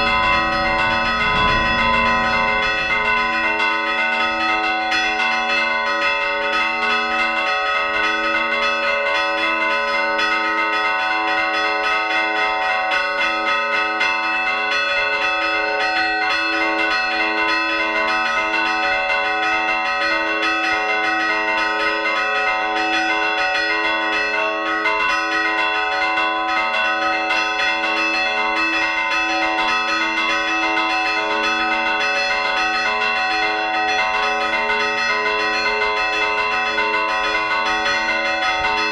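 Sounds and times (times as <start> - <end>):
church bells pealing: 0.0 - 38.9.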